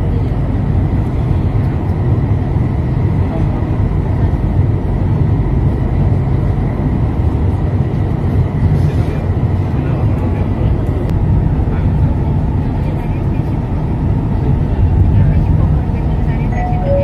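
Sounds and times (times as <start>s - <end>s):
train rumbling in tunnel: 0.0s - 17.0s
faint high tone: 16.5s - 17.0s.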